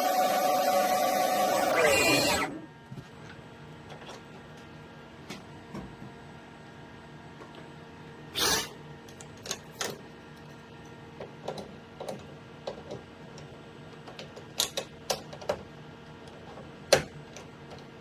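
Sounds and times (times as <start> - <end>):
steady machine hum: 0.0 - 9.3.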